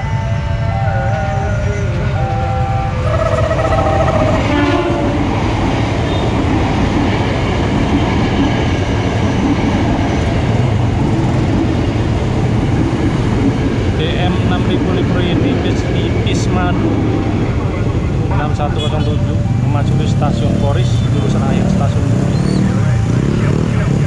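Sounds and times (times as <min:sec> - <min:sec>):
train horn blasts: 0:00.0 - 0:05.4
train rumble and wheel clatter: 0:00.0 - 0:24.0.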